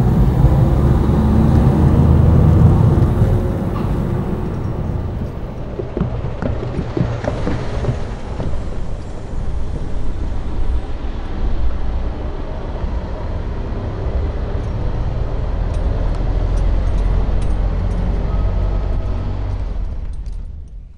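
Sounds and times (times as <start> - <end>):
car driving over rails: 0.0 - 10.3
low rumble of traffic: 0.0 - 20.9.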